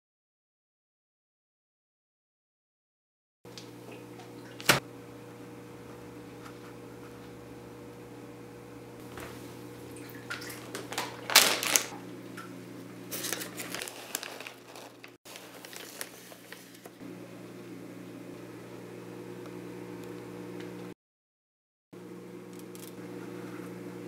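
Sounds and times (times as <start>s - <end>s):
steady low hum: 3.5s - 13.2s
plastic pouch crinkling: 10.6s - 12.0s, 13.1s - 17.0s.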